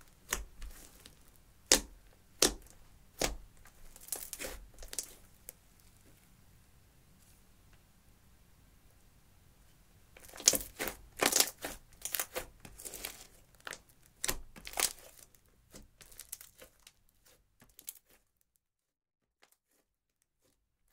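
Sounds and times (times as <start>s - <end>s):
slime crackling and popping: 0.0s - 5.9s, 10.2s - 18.2s.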